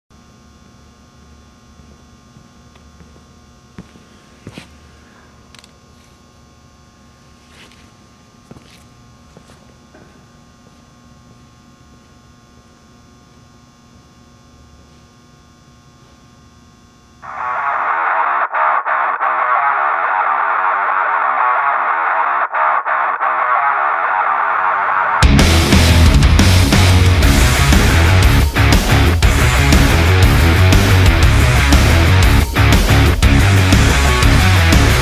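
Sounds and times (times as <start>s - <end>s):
steady electrical hum: 0.1s - 35.0s
footsteps on concrete floor: 2.4s - 5.0s, 7.4s - 10.8s.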